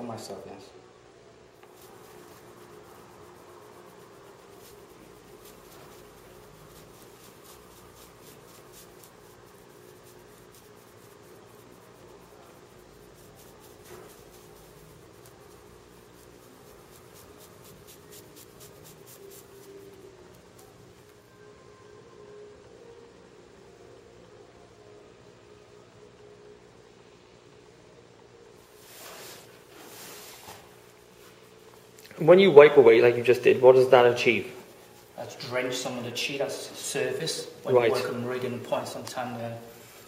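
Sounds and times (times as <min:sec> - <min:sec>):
steady low hum: 0:00.0 - 0:40.0
hands rubbing cloth trousers: 0:01.6 - 0:21.2, 0:28.6 - 0:40.0.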